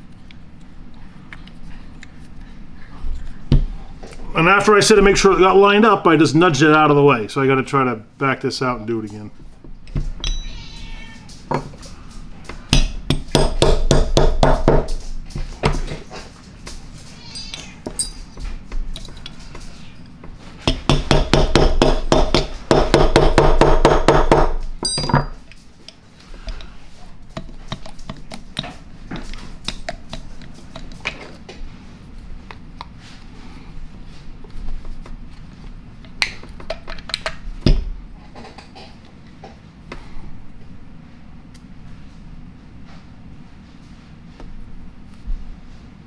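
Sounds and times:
handling clatter and knocks: 24.7 - 25.8.

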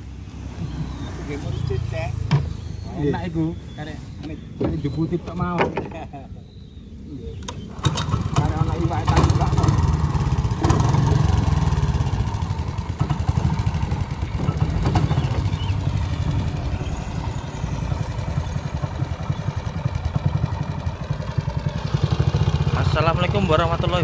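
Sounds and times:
small boat engine chugging: 7.7 - 24.0.

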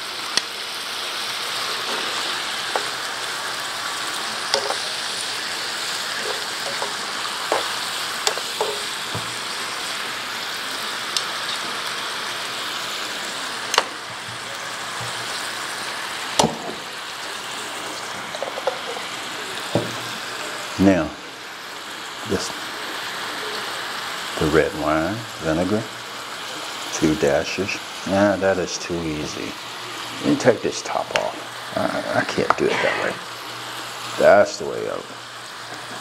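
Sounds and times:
food sizzling in a frying pan: 0.0 - 36.0
metal tongs clicking on pan: 4.5 - 5.0, 6.2 - 8.9.

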